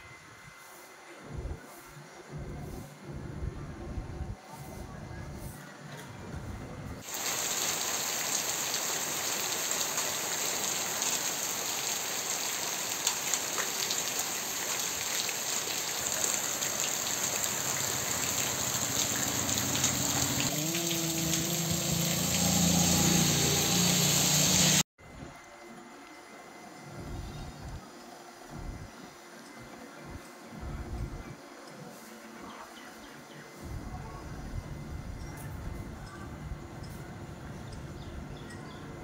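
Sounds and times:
heavy rain pouring on a street: 7.0 - 24.8
car driving on a wet road: 19.0 - 24.8.

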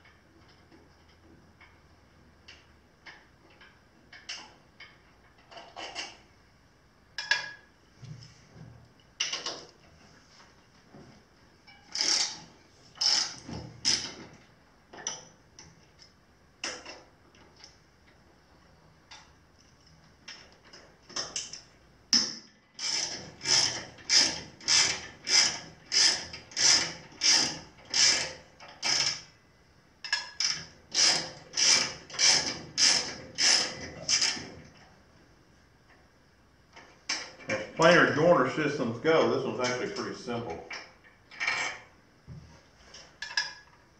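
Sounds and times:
socket ratchet wrench ratcheting: 11.9 - 14.2.

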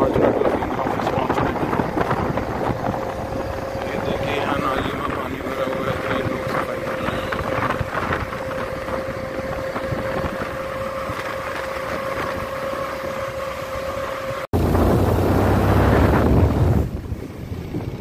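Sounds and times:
motorcycle engine whining: 0.0 - 18.0
wind noise on microphone: 0.0 - 18.0.

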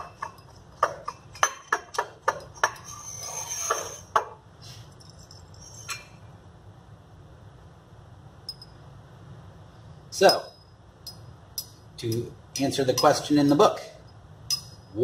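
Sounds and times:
glassware clinking on a bench: 8.5 - 8.8, 10.2 - 13.4, 14.5 - 14.9.

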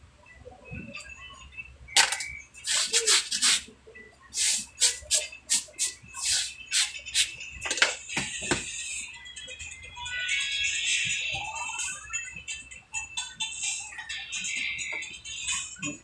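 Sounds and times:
rasping strokes on a shoe: 2.6 - 3.7, 4.4 - 7.3.

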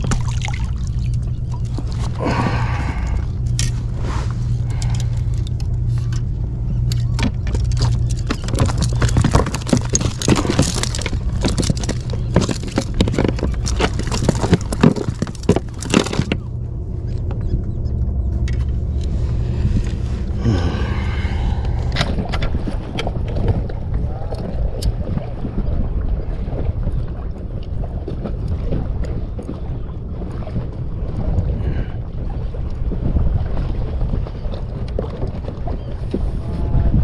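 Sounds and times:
wind rumble on microphone: 0.0 - 37.0
clicks knocks and scrapes in boat: 3.4 - 17.6, 34.0 - 37.0.

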